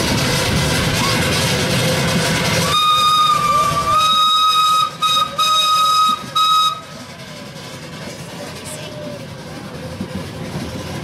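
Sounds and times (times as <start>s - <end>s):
train running rumble: 0.0s - 11.0s
miniature train whistle: 2.6s - 7.0s.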